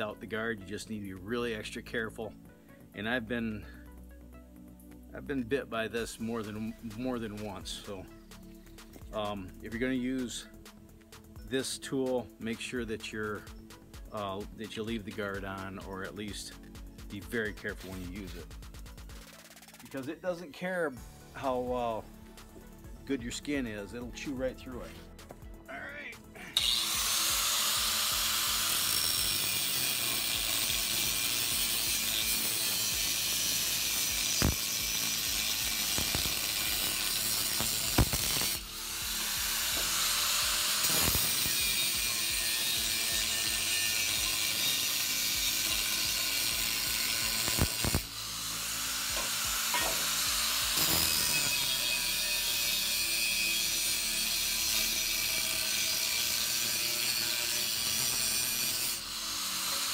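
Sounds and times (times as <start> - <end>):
angle grinder cutting steel: 26.3 - 59.9.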